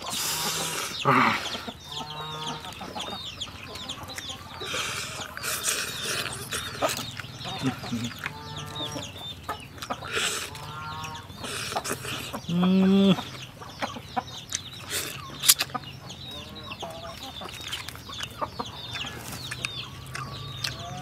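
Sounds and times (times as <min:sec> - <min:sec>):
chickens clucking: 0:00.0 - 0:21.0
chewing and lip-smacking: 0:03.7 - 0:10.7, 0:11.4 - 0:12.4, 0:14.3 - 0:15.9, 0:17.1 - 0:21.0.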